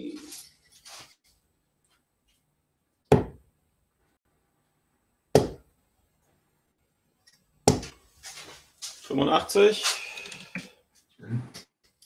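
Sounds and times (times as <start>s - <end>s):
darts hitting dartboard: 3.1s - 3.4s, 5.4s - 5.7s, 7.7s - 7.9s.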